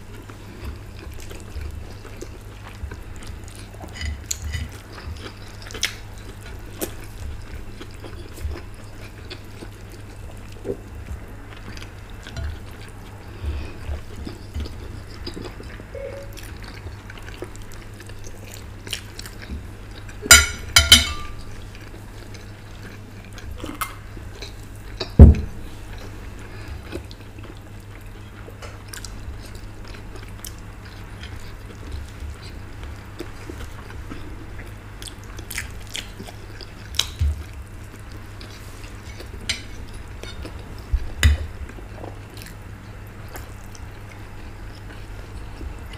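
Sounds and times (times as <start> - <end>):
people chewing: 0.0 - 45.9
dull thump: 25.2 - 25.6.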